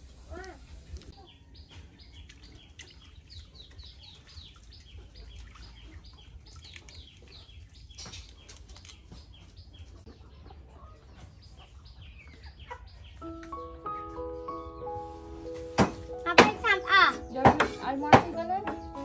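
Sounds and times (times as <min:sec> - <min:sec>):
birds chirping: 0:00.0 - 0:19.0
chickens clucking: 0:00.3 - 0:13.7.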